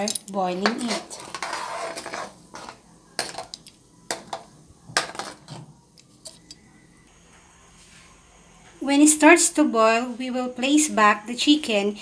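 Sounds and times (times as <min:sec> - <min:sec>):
utensil scraping metal wok: 0:00.7 - 0:02.8.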